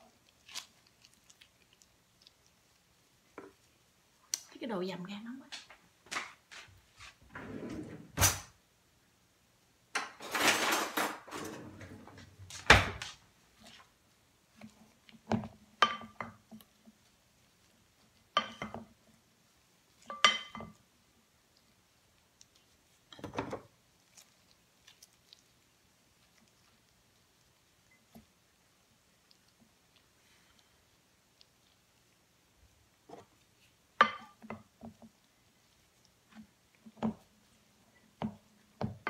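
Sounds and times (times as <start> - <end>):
hands kneading rice: 0.0 - 4.4, 6.2 - 7.2, 12.5 - 39.0
kitchen knocks and rustle: 5.5 - 8.6, 9.9 - 13.8, 23.1 - 23.7, 38.1 - 39.0.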